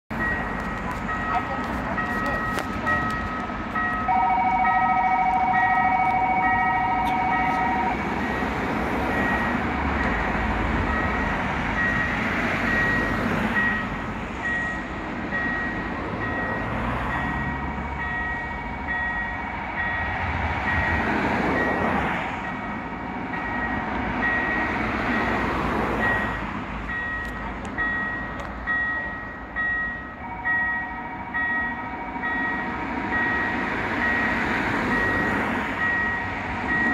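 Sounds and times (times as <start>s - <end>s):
level crossing warning bell: 0.1s - 36.9s
road vehicles passing: 0.1s - 36.9s.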